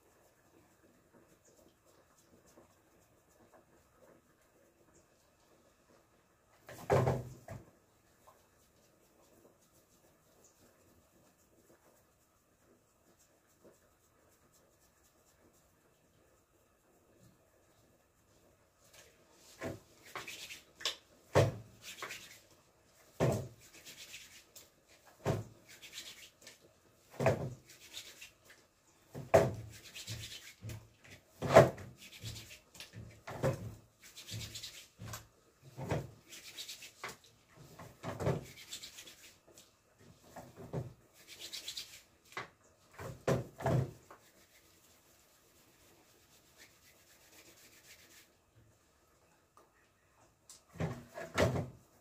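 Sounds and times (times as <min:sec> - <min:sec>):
hands rubbing: 0:18.9 - 0:21.0, 0:21.7 - 0:22.6, 0:23.5 - 0:26.7, 0:27.6 - 0:28.7, 0:29.6 - 0:30.9, 0:31.9 - 0:33.0, 0:34.0 - 0:35.4, 0:36.1 - 0:37.3, 0:38.4 - 0:39.7, 0:41.1 - 0:42.4, 0:44.0 - 0:48.4.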